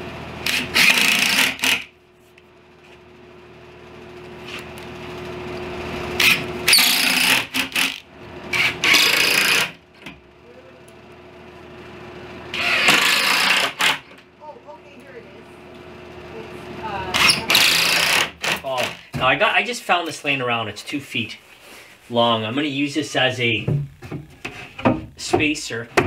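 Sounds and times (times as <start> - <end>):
steady hum: 0.0 - 26.0
cordless drill running: 0.4 - 1.9, 6.1 - 9.8, 12.5 - 14.1, 17.1 - 19.1.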